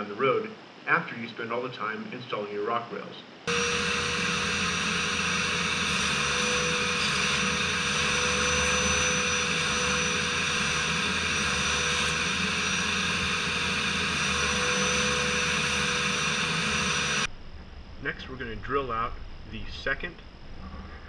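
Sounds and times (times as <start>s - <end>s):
vacuum cleaner whining: 3.5s - 17.3s.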